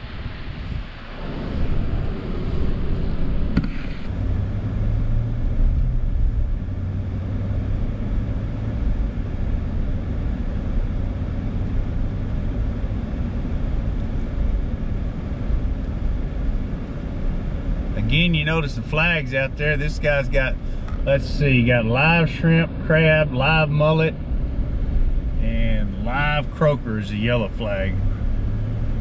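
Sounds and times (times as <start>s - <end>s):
wind hiss: 0.0s - 4.9s
low engine hum: 0.0s - 29.0s
road rumble inside vehicle: 0.0s - 29.0s.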